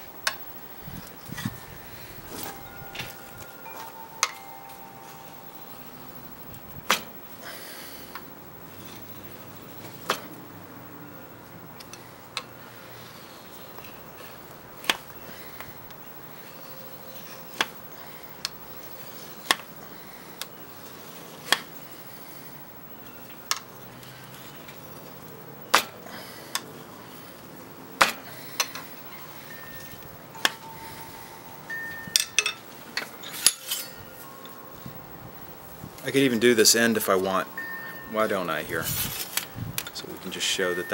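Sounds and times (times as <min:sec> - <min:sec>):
blade ringing: 0:00.0 - 0:08.1, 0:28.3 - 0:40.9
steel rod scraping blade edge: 0:33.0 - 0:34.3.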